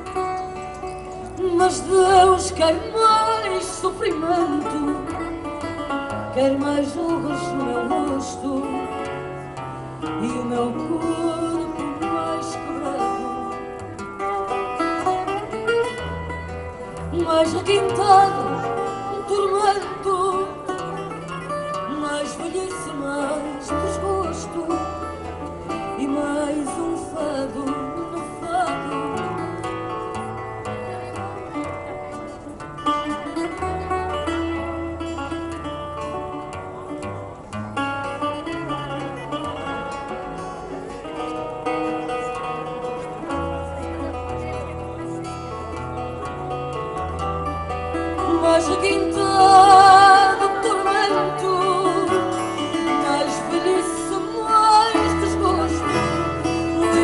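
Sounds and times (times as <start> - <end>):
plucked acoustic guitar: 0.0 - 57.0
woman singing: 1.4 - 5.6, 6.3 - 9.2, 10.0 - 13.7, 17.0 - 29.5, 48.2 - 57.0.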